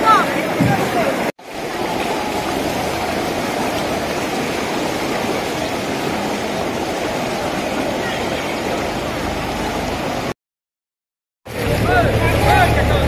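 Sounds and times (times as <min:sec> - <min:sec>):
floodwater rushing: 0:00.0 - 0:10.4, 0:11.5 - 0:13.0.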